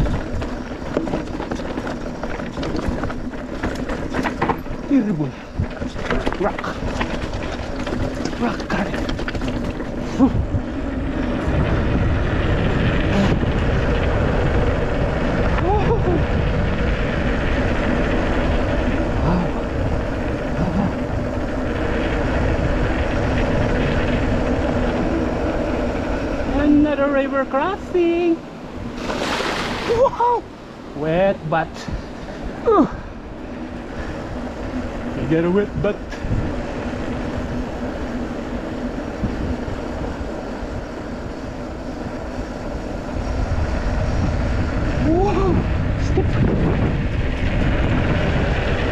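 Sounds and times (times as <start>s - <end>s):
bike rumbling over rough trail: 0.0s - 48.9s
wind buffeting microphone: 0.0s - 48.9s.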